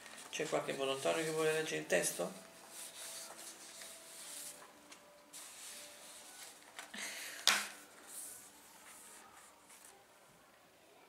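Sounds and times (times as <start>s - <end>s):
rustling and handling noises: 0.0s - 10.1s.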